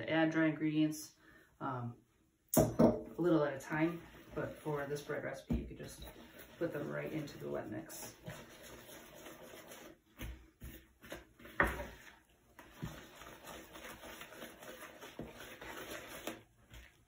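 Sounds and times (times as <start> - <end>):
spoon scraping batter in bowl: 3.7 - 17.0.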